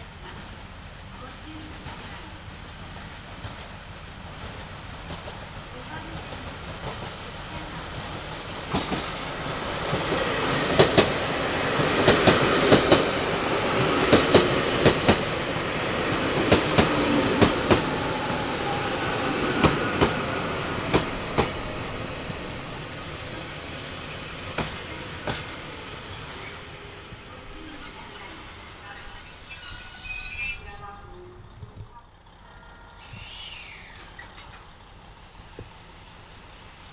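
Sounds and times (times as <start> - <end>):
electric train rolling past: 0.0 - 36.9.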